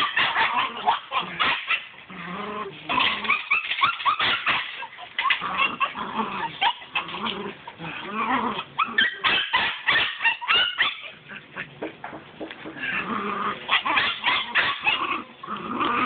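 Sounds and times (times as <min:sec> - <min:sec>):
puppy yipping and whining: 0:00.0 - 0:02.0, 0:02.9 - 0:07.8, 0:08.5 - 0:11.7, 0:13.6 - 0:15.3.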